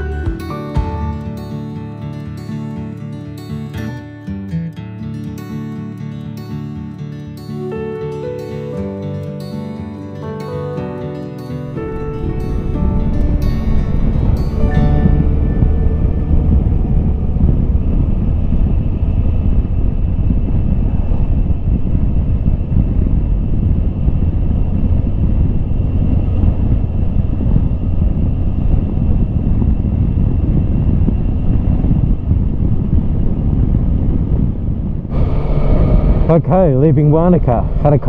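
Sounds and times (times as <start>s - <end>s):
motorcycle engine and road drone: 11.7s - 38.0s
wind buffeting microphone: 11.8s - 38.0s.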